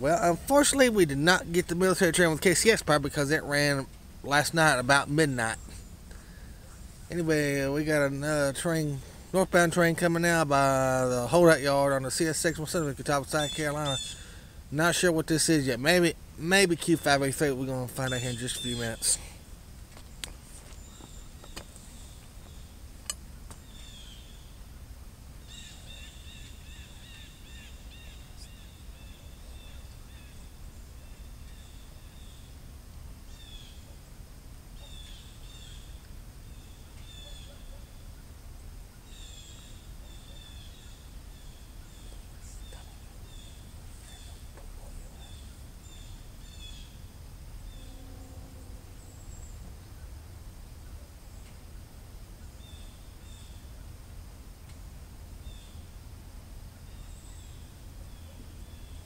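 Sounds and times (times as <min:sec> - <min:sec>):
birds chirping: 0:00.0 - 0:34.1, 0:34.7 - 0:54.1, 0:56.8 - 0:59.0
low outdoor rumble: 0:00.0 - 0:59.0.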